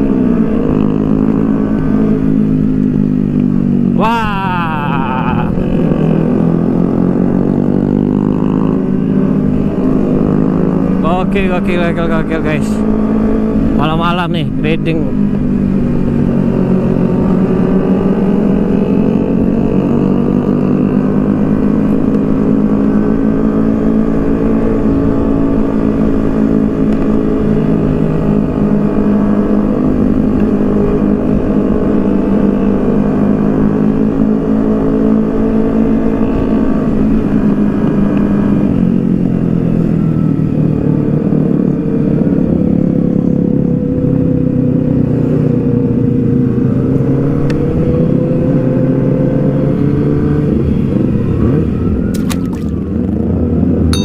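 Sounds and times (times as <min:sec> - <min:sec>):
motorcycle engine running: 0:00.0 - 0:48.9, 0:49.8 - 0:54.0.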